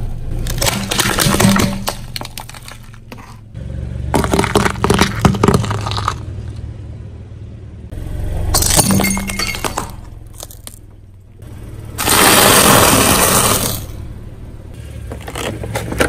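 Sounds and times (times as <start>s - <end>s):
car tyre crushing brittle objects: 0.0s - 6.7s, 8.5s - 11.3s, 12.0s - 14.0s, 14.8s - 16.0s
car engine hum: 0.0s - 16.0s.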